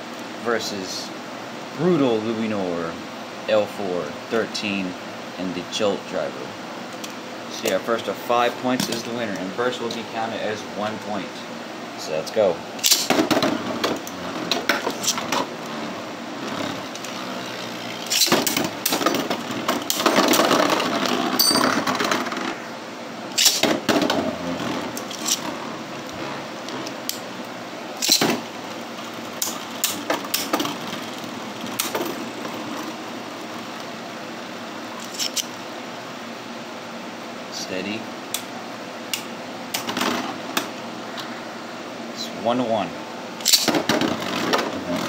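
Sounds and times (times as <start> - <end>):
spinning tops clacking: 12.8 - 15.7, 16.4 - 22.6, 23.3 - 25.5, 28.0 - 33.0, 43.4 - 45.0
spinning tops rattling scrape: 12.8 - 22.6, 23.3 - 25.7, 28.0 - 33.1, 35.0 - 35.5.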